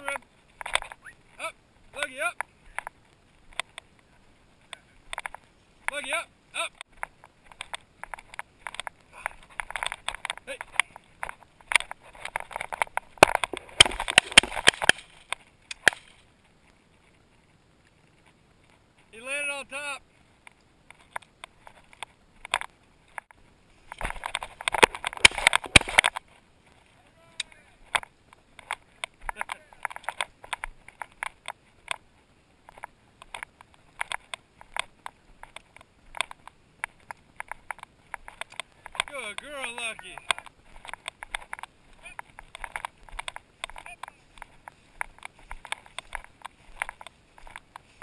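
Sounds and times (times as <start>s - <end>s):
footsteps crunching dry grass: 6.9s - 19.0s, 20.1s - 48.0s.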